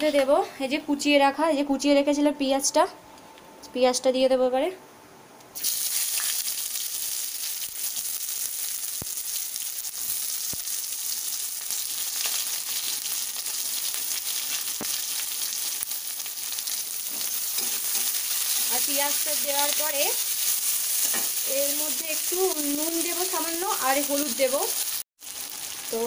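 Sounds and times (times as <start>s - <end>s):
onion frying in hot oil: 5.6s - 26.0s.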